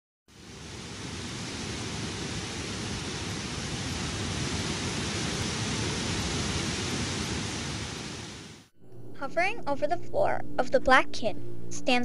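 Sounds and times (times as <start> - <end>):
heavy torrent of water rushing: 0.3 - 8.7.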